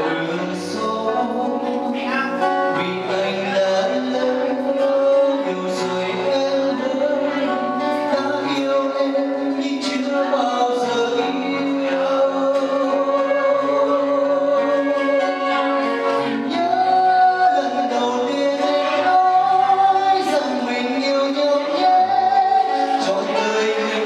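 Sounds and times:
acoustic guitar: 0.0s - 24.0s
man singing into a microphone: 0.0s - 24.0s.

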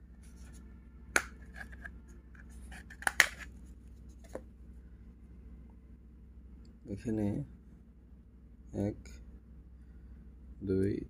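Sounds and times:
plastic phone cover clicks: 3.0s - 3.4s.

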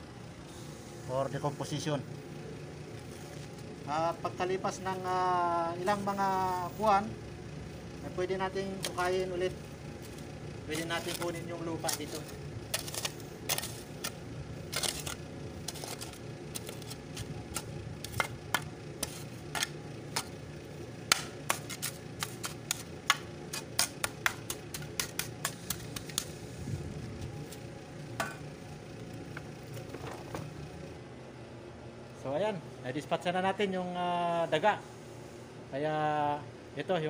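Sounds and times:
shovel tapping soil: 8.7s - 9.2s, 10.0s - 20.4s, 21.0s - 26.4s.

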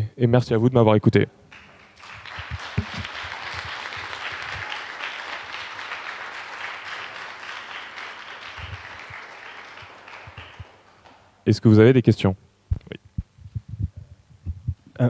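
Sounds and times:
audience applauding: 1.5s - 11.4s.

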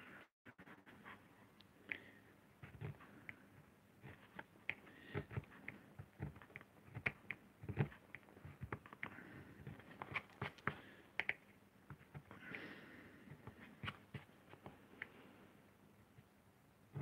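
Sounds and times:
gouge scraping lino: 2.6s - 11.0s.

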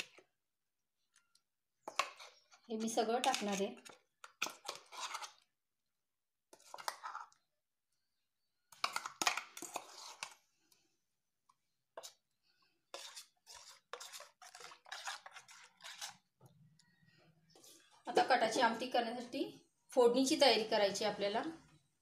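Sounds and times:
steel kitchenware scraping and clinking: 1.9s - 5.4s, 8.7s - 10.4s, 12.9s - 16.2s.

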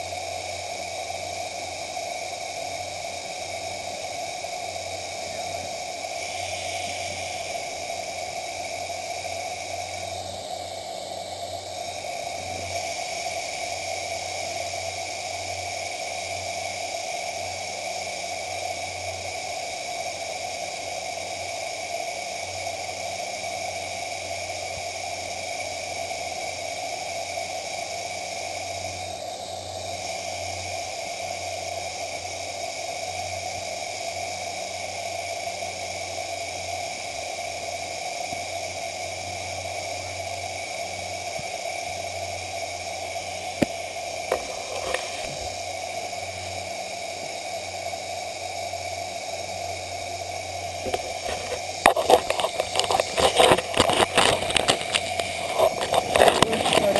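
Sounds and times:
microphone hiss and hum: 43.1s - 46.1s, 50.4s - 56.9s.

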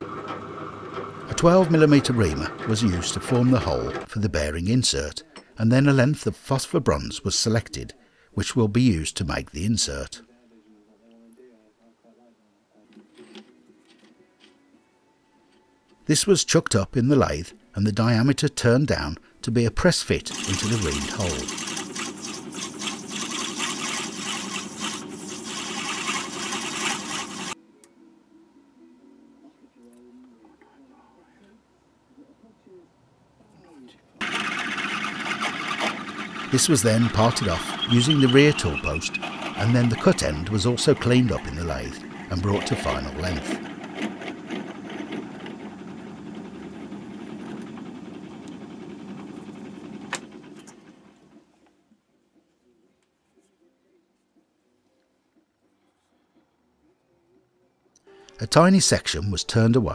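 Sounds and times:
metal lathe cutting: 0.1s - 4.1s, 20.2s - 27.6s, 34.2s - 46.1s.

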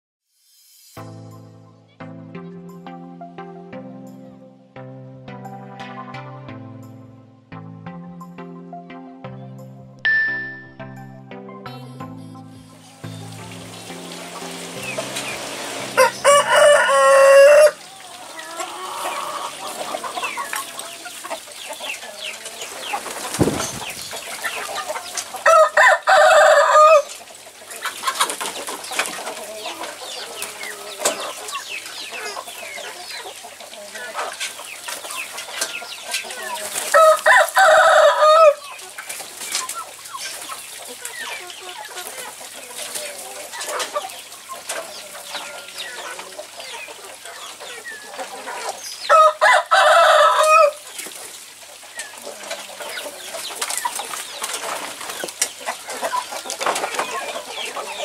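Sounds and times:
chickens clucking and chirping: 10.1s - 58.0s
rooster crowing: 16.0s - 19.6s, 25.4s - 27.1s, 36.9s - 38.6s, 49.1s - 50.8s.

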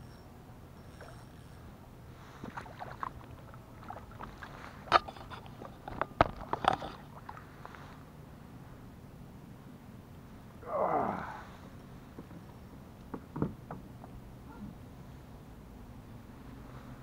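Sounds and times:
water splashing: 2.2s - 5.8s.

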